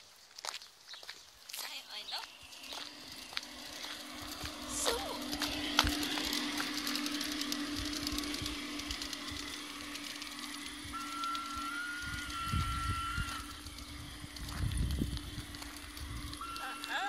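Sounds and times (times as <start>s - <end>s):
train running hum with clicks: 1.5s - 17.0s
whistle-like tone: 10.0s - 13.6s, 16.2s - 17.0s.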